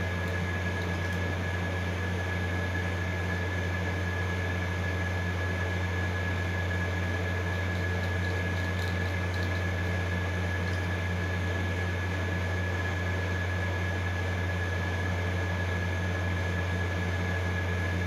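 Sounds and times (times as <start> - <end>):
machine hum and whir: 0.0 - 18.0.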